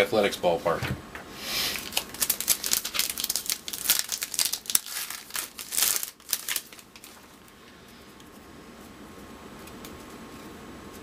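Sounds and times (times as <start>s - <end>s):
foil wrapper crinkling and tearing: 1.7s - 7.5s.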